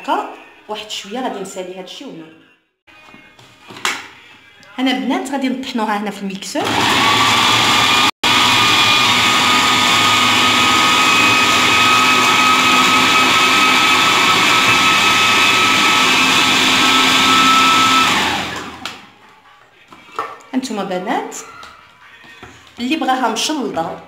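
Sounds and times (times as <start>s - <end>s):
food processor motor whine: 6.6s - 19.0s.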